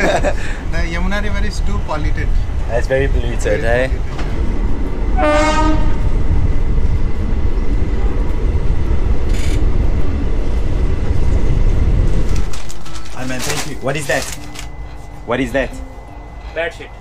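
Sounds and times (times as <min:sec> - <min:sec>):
train wheels rumbling: 0:00.0 - 0:17.0.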